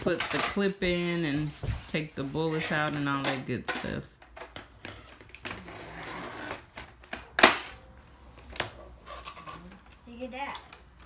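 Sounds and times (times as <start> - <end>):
loud plastic snap: 7.0 - 7.8.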